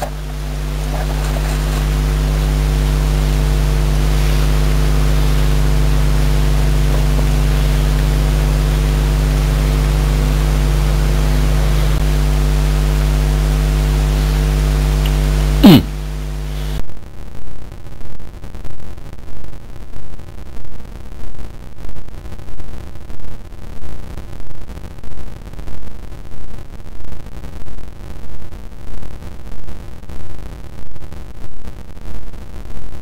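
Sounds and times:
electrical hum: 0:00.0 - 0:16.9.

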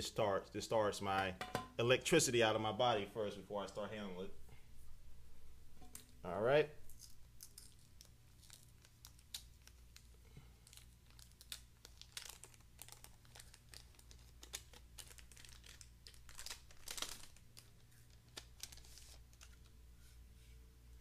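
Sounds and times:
plastic bag crinkling: 0:06.9 - 0:19.8.

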